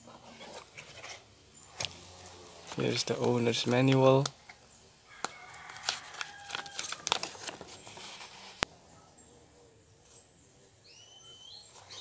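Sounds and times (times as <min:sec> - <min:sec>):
paper rustling and crinkling: 0:00.0 - 0:01.2, 0:05.6 - 0:08.7.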